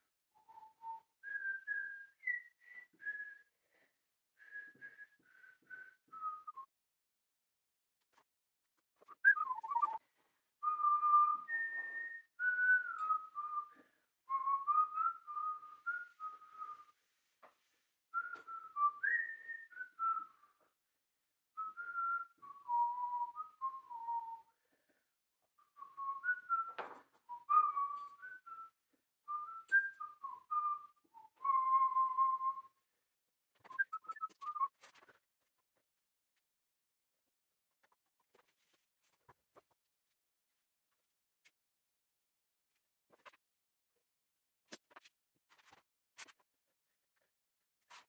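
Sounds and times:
woman whistling a tune: 0.4s - 6.7s, 9.1s - 10.0s, 10.6s - 16.9s, 18.1s - 20.7s, 21.6s - 24.6s, 25.6s - 32.8s, 33.6s - 34.8s.

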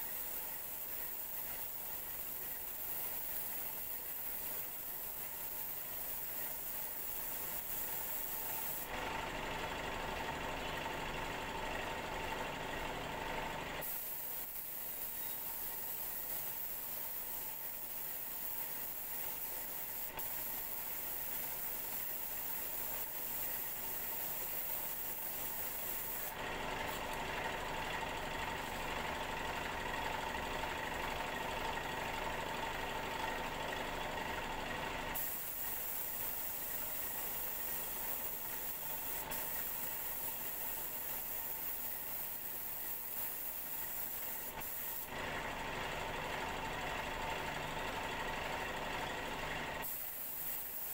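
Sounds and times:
paint spray gun hissing: 0.0s - 9.0s, 13.8s - 27.2s, 35.1s - 45.2s, 49.8s - 50.9s.

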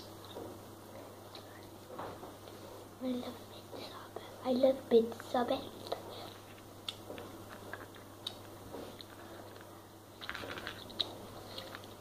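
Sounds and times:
person chewing sticky candy: 5.8s - 12.0s.

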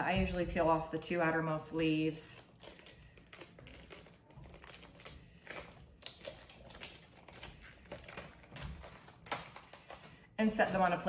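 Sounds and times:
cabbage leaves crackling and snapping: 2.4s - 10.1s.

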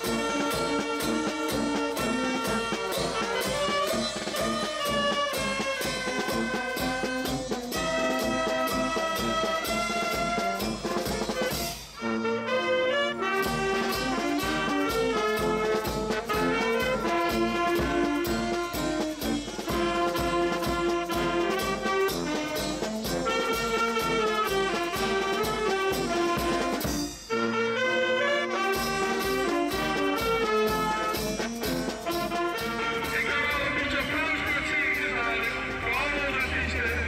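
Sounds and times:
steady drum beat: 0.0s - 12.0s, 13.2s - 27.4s, 28.6s - 37.0s
brass band playing lively tune: 0.0s - 37.0s.

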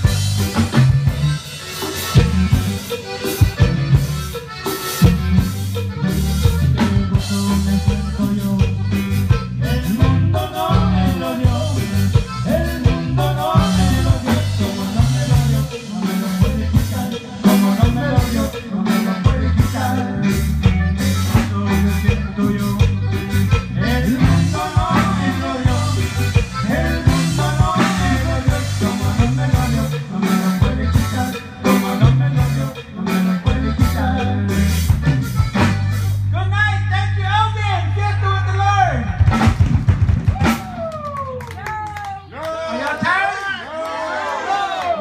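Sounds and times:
button accordion: 0.0s - 37.2s
live band playing: 0.0s - 44.9s.

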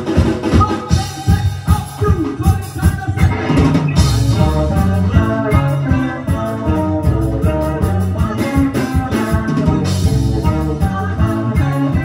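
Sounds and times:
drum beat: 0.0s - 12.0s
electric guitar: 0.0s - 12.0s
melodica: 0.8s - 12.0s
low bass: 2.4s - 12.0s
accordion: 2.9s - 12.0s.

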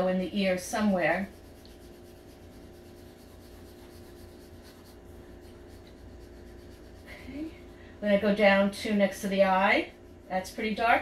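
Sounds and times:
pencil shading on paper: 0.1s - 7.8s.

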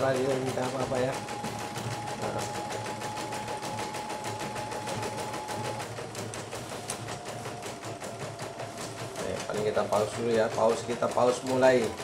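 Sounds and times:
motor whine: 0.0s - 9.2s
embroidery machine needle ticking: 0.0s - 12.0s.

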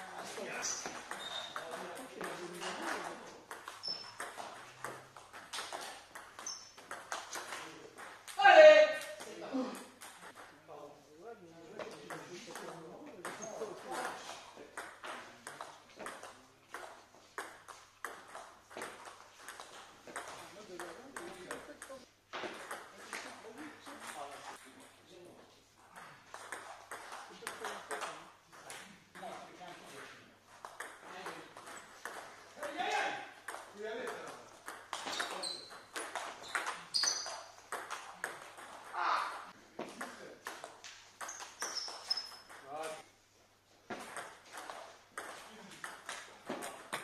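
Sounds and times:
short high squeaks: 1.1s - 1.6s, 3.8s - 4.2s, 6.4s - 6.8s, 35.1s - 37.5s, 41.2s - 42.5s.

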